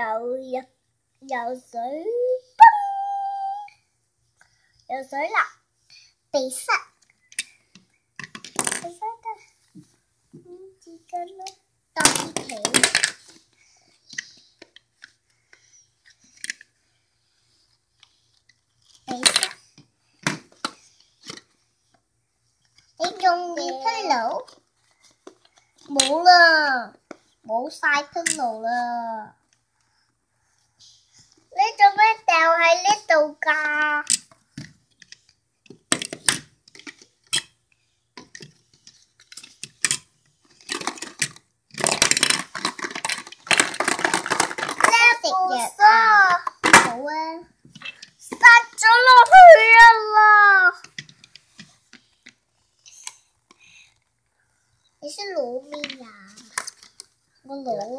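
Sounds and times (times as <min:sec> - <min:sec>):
plastic bricks clicking together: 0:11.4 - 0:13.4, 0:33.7 - 0:37.6, 0:38.2 - 0:45.2.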